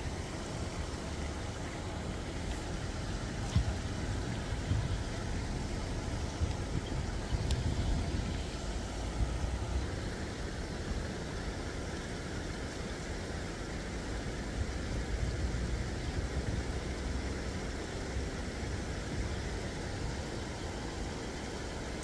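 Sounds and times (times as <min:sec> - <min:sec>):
steady low rumble: 0:00.0 - 0:12.3.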